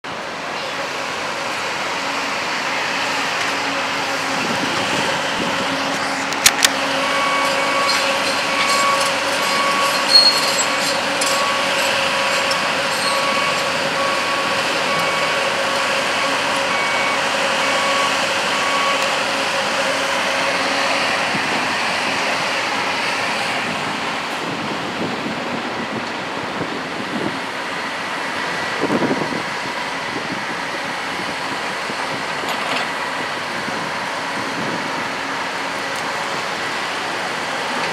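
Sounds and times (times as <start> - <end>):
construction machinery diesel drone: 0.0 - 37.9
reversing alarm beeping: 6.8 - 23.4.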